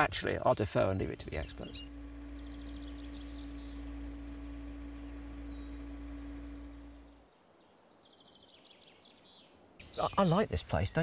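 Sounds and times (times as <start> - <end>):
birds chirping faintly: 0.0 - 11.0
diesel engine humming: 1.0 - 7.2.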